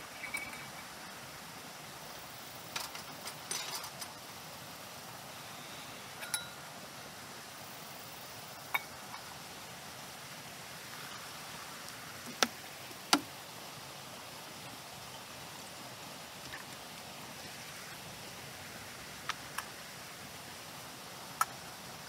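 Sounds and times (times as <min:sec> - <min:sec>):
stream hissing: 0:00.0 - 0:22.0
metal cups clinking: 0:00.2 - 0:00.9, 0:02.8 - 0:04.1, 0:06.2 - 0:06.7, 0:08.7 - 0:09.2.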